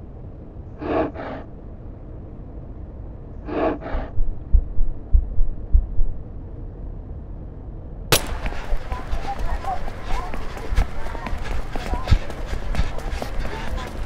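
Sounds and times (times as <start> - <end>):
low rumble: 0.0 - 14.0
sharp breath puffs: 0.8 - 1.5, 3.4 - 4.3, 8.2 - 14.0
low heartbeat thumps: 4.0 - 6.4, 8.1 - 14.0
starter's pistol crack: 8.1 - 8.8.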